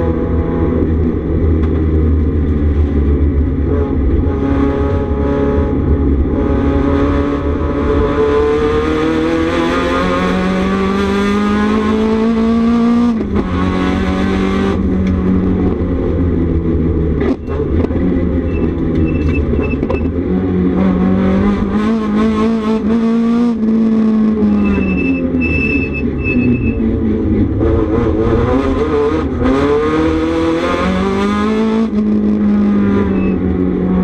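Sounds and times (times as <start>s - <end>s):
race car engine revving: 0.0s - 34.0s
short high electronic beeps: 24.6s - 26.8s, 33.1s - 33.4s.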